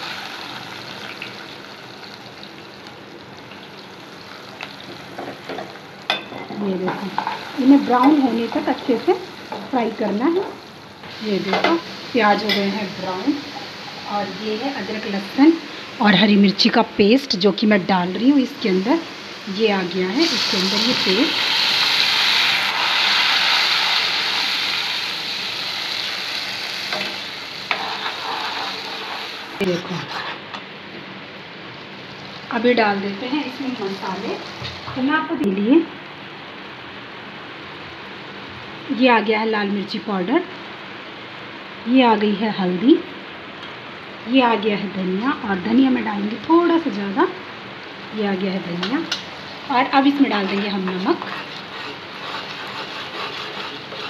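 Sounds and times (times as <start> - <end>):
paste sizzling in hot oil: 0.0 - 2.8, 19.2 - 30.5, 50.2 - 54.0
onions sizzling in hot oil: 0.0 - 30.5, 31.7 - 35.4, 45.2 - 54.0.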